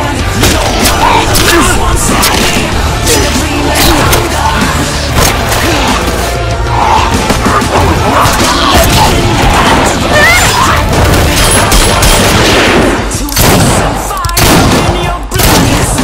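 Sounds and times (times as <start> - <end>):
gunfire bursts: 10.9 - 16.0.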